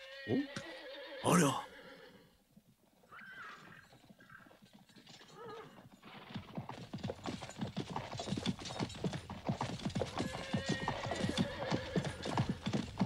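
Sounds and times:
horse whinnying: 0:00.0 - 0:02.4, 0:03.0 - 0:04.6, 0:05.2 - 0:06.4, 0:09.8 - 0:13.0
clatter of many hoofbeats: 0:02.9 - 0:13.0.

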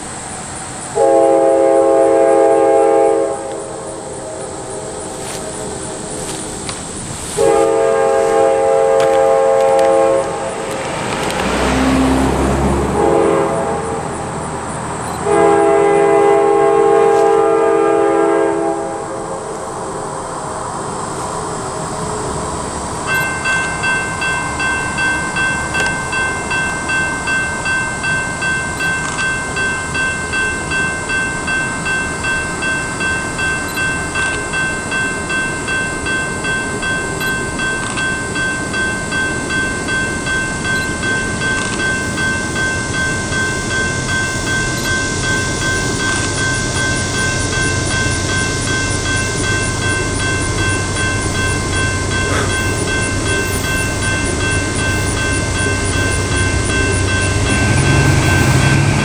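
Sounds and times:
low rumble of approaching train: 0:00.0 - 0:59.0
electronic crossing bell ringing: 0:23.0 - 0:59.0.

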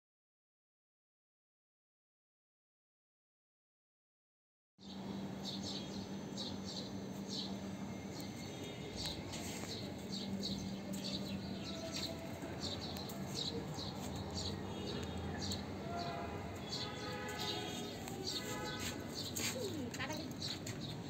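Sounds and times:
small birds chirping: 0:04.8 - 0:21.0
steady low hum: 0:04.8 - 0:21.0.

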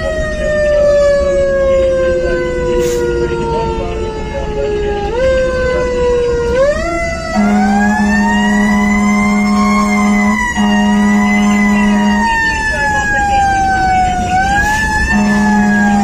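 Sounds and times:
mechanical siren wailing: 0:00.0 - 0:16.0
air horn blast: 0:02.7 - 0:03.4, 0:07.3 - 0:13.0, 0:14.6 - 0:16.0.

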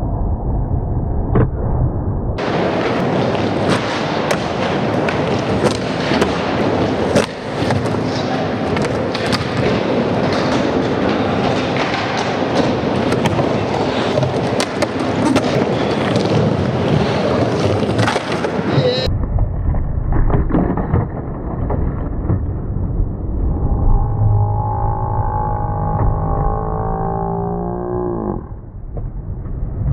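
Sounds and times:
skateboard clacks and knocks: 0:02.4 - 0:19.1
skateboard wheels rolling on concrete: 0:02.4 - 0:23.6.

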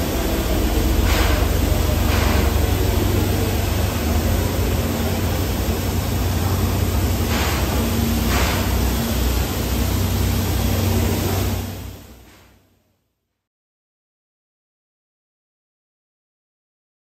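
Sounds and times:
steam hissing from a pipe: 0:00.0 - 0:12.7.

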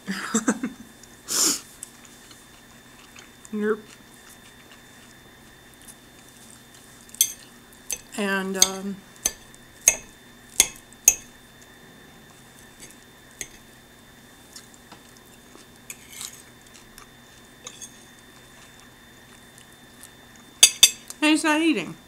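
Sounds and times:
fork clinking and scraping on plate: 0:17.6 - 0:18.1, 0:20.6 - 0:21.1.

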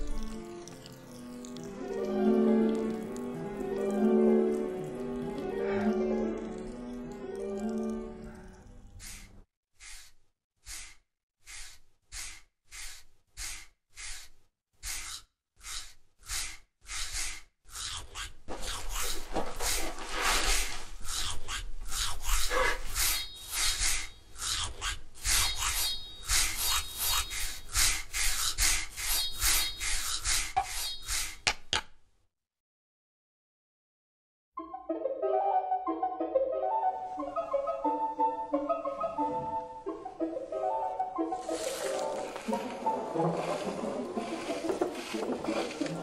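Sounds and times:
scrubber rasping on skin: 0:08.6 - 0:31.7.

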